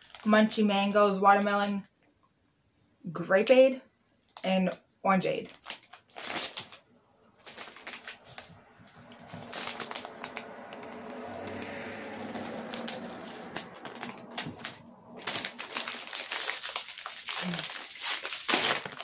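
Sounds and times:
packaging crinkling: 0.0 - 0.3, 5.4 - 19.0
scissors snipping plastic bag: 12.7 - 19.0.

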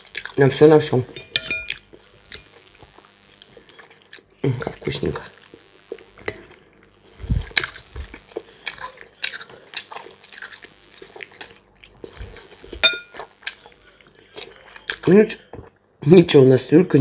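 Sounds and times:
person chewing food: 1.7 - 4.4, 5.4 - 15.1.

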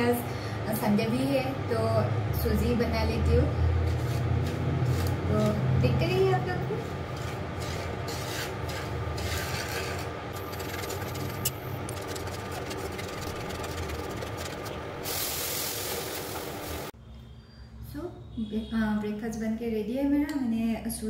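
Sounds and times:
wooden spatula scraping pan: 3.8 - 14.8
liquid hissing in hot pan: 15.0 - 16.9.

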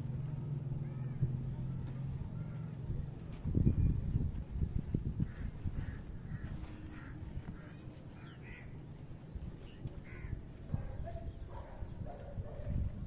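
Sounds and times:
low rumbling noise: 0.0 - 13.0
crow cawing: 5.2 - 8.8, 10.0 - 10.4.

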